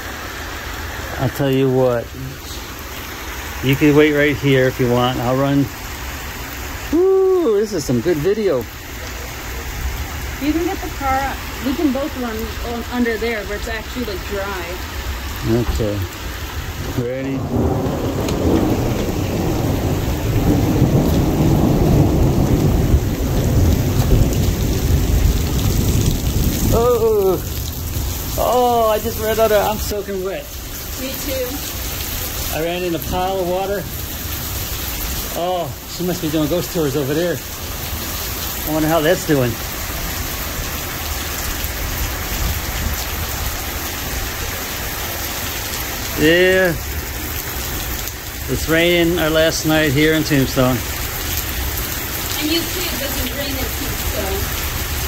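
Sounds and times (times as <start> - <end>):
heavy pouring rain: 0.0 - 55.0.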